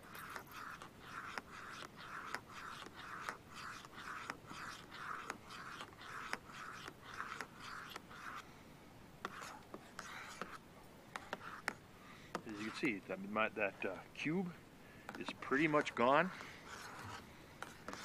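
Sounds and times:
spoon scraping metal cup: 0.0s - 8.4s.

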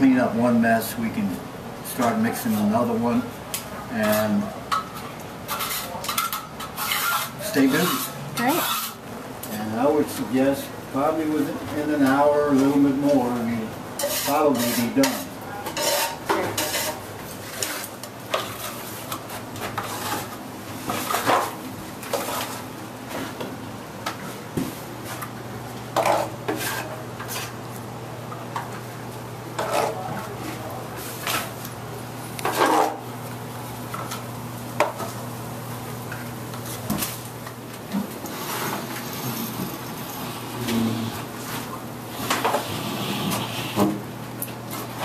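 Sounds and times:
steel trowel scraping plaster: 5.5s - 9.0s, 14.0s - 17.9s.

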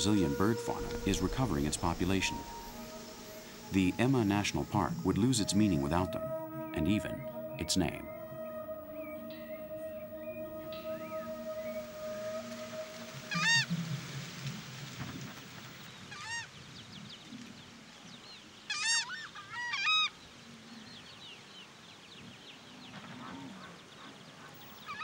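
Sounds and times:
birds honking calls: 0.0s - 16.4s.

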